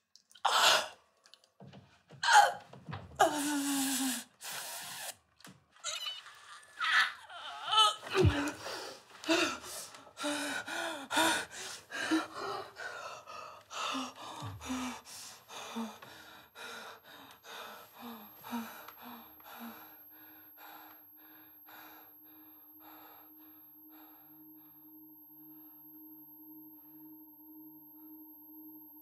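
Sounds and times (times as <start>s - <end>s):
woman panting and moaning: 2.2s - 5.2s, 5.8s - 23.2s
low hum: 12.1s - 29.0s.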